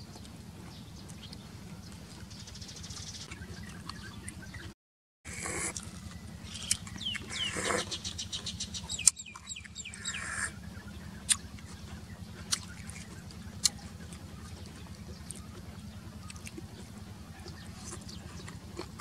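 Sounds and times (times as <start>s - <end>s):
steady low hum: 0.0s - 4.7s, 5.3s - 19.0s
slurping and sucking snails: 5.3s - 10.6s, 11.2s - 17.0s, 17.6s - 19.0s.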